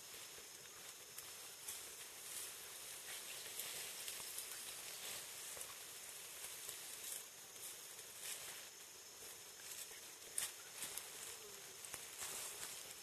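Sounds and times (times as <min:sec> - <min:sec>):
leaves and branches rustling: 0:00.0 - 0:13.0
steady high hiss: 0:00.0 - 0:13.0.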